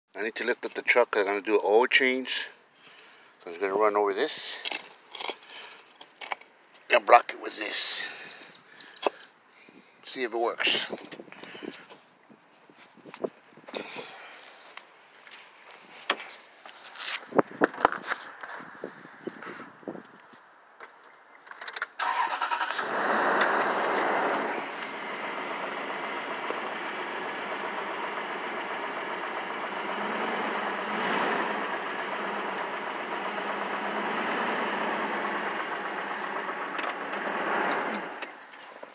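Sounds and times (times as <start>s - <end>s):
vehicle engine starting and running: 22.0s - 38.5s.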